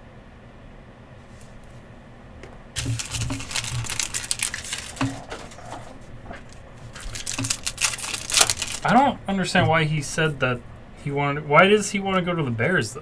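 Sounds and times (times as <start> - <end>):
wrapper tearing crinkle: 2.8 - 9.0.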